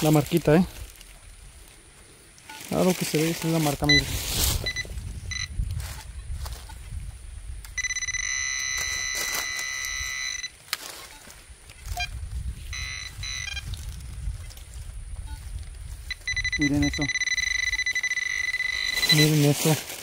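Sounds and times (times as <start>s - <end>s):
metal detector electronic buzz: 3.5s - 6.8s, 7.6s - 14.6s, 15.2s - 19.8s
short beeps: 3.8s - 6.8s, 7.8s - 13.7s, 15.2s - 19.8s.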